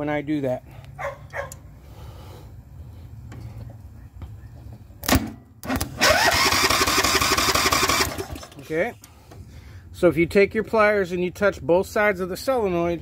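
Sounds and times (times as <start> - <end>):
electric starter cranking engine: 5.7 - 8.7.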